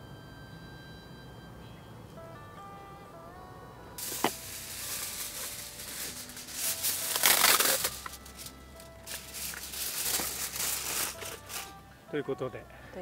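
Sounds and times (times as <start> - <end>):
aluminium foil crinkling: 4.0 - 11.8.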